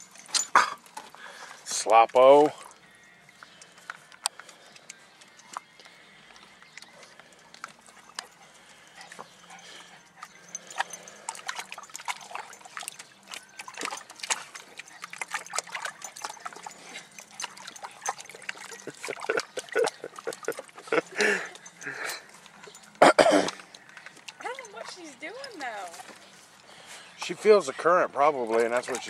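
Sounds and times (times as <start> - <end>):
garden hose trickling: 0.0 - 29.0
dog splashing in water: 6.8 - 26.3, 28.5 - 29.0.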